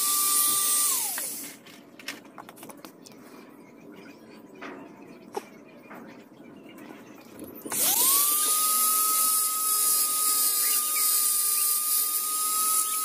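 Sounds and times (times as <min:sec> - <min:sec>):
rotary tool whine: 0:00.0 - 0:01.8, 0:07.4 - 0:13.0.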